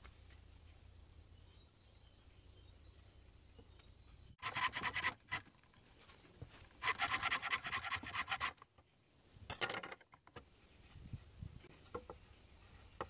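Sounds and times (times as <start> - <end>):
hand saw cutting bamboo: 4.4 - 5.5, 6.7 - 8.6.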